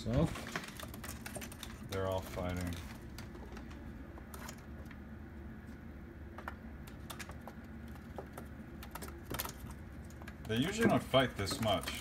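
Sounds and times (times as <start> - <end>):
low steady hum: 0.0 - 12.0
pigeons pecking on stone ledge: 0.0 - 12.0.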